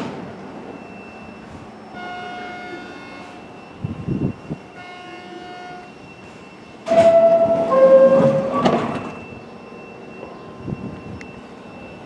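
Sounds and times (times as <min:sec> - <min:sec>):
train doors closing with a knock: 0:00.0 - 0:00.4, 0:06.8 - 0:09.2
two-tone electronic door chime: 0:00.7 - 0:12.0.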